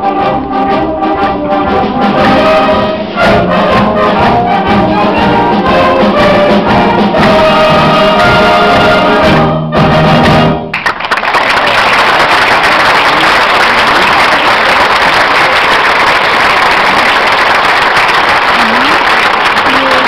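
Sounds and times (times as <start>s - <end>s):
choir with instruments: 0.0s - 10.7s
audience applause: 10.7s - 20.0s.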